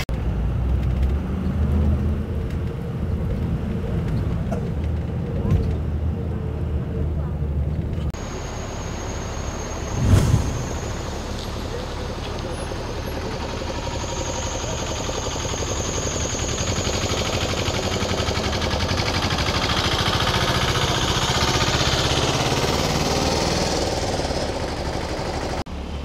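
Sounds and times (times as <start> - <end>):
vehicle engine pulsing: 1.6 - 25.6.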